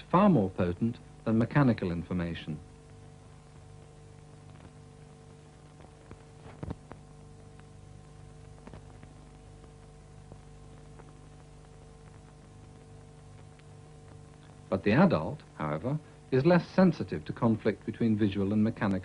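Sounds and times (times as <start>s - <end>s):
faint steady hum: 0.0s - 19.0s
film soundtrack clicks and pops: 2.7s - 16.4s.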